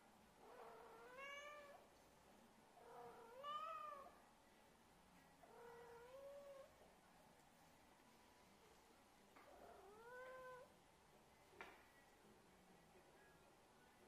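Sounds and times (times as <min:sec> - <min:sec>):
cat meowing: 0:00.6 - 0:01.8, 0:09.6 - 0:10.7.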